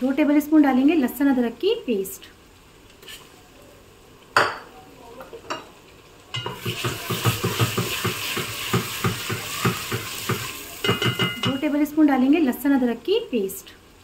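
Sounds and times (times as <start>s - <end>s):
paste sizzling in hot oil: 6.4s - 11.8s.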